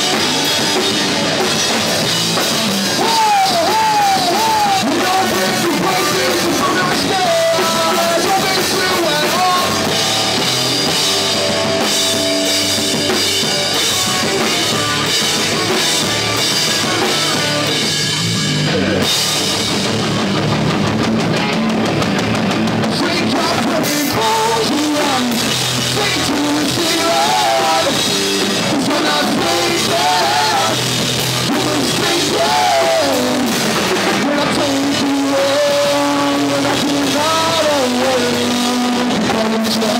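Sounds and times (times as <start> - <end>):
bass guitar: 0.0 - 39.9
drum kit: 0.0 - 39.9
electric guitars: 0.0 - 39.9
singer's vocals: 2.8 - 10.5, 22.8 - 39.9.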